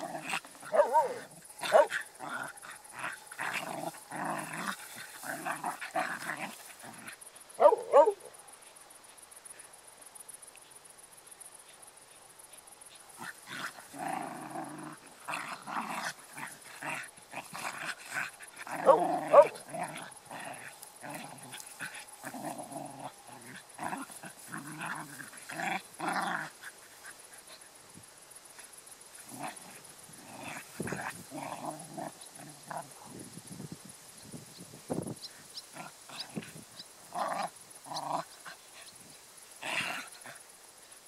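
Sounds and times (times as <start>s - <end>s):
dogs growling in play: 0.0s - 8.3s, 12.9s - 27.8s, 28.5s - 33.3s, 35.7s - 40.5s.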